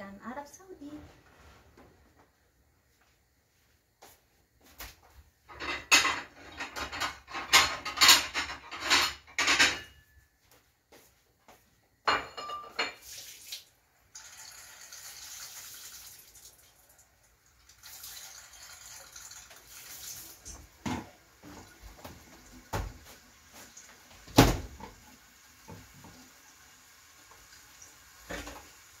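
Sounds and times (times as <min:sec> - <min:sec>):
dishes clattering: 0:05.5 - 0:10.2, 0:12.0 - 0:13.1, 0:20.8 - 0:22.9, 0:28.3 - 0:28.7.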